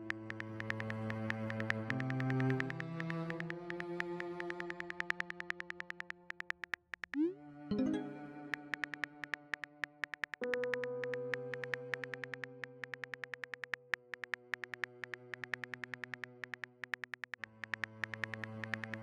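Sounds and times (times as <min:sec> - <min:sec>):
phone keyboard typing clicks: 0:00.0 - 0:19.0
synthesizer pad chords: 0:07.2 - 0:09.3.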